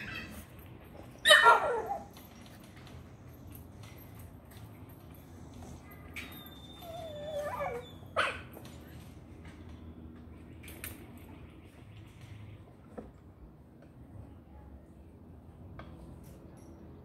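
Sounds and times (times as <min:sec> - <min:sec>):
dog whining: 0:00.0 - 0:00.5, 0:01.1 - 0:02.2, 0:06.2 - 0:08.5
dog barking: 0:01.3 - 0:02.0.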